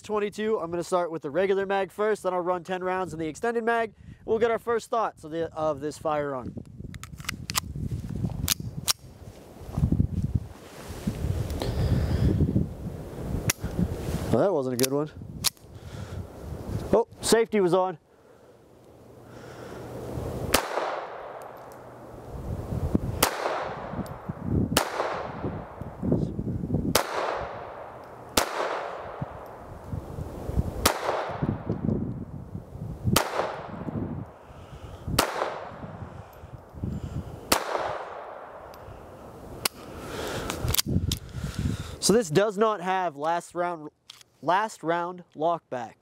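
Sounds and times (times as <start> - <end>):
pistol shots echoing: 20.5 - 21.6, 23.2 - 25.8, 26.9 - 29.6, 30.8 - 31.5, 33.2 - 33.8, 35.2 - 35.8, 37.5 - 38.7.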